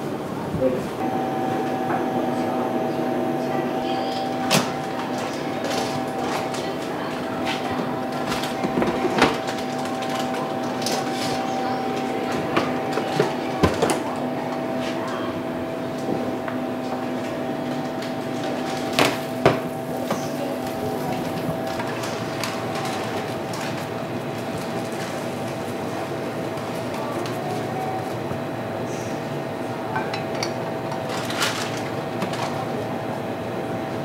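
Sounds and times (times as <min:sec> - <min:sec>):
steady machine hum: 0:00.0 - 0:34.0.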